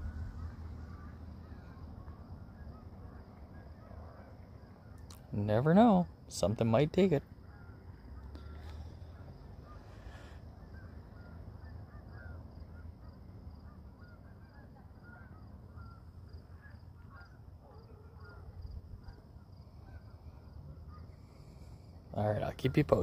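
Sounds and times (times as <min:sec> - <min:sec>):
geese honking: 0:09.4 - 0:18.6.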